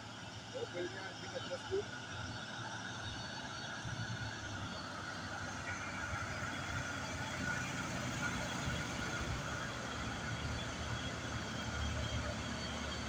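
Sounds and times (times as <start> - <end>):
truck diesel engine rumbling: 0.0 - 13.0.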